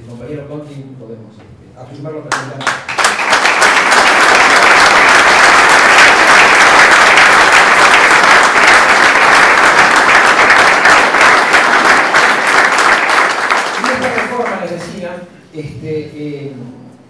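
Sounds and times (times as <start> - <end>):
audience applauding: 2.3 - 15.0.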